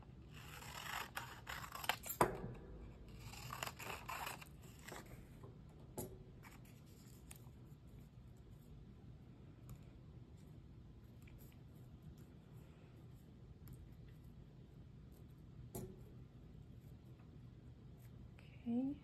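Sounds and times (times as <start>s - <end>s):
shears snipping paper: 0.3s - 2.2s.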